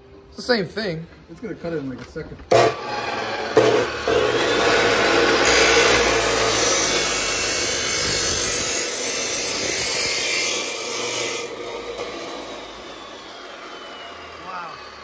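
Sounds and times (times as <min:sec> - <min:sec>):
saw grinding through steel pipe: 0:02.5 - 0:15.0
motor winding down whine: 0:11.9 - 0:15.0.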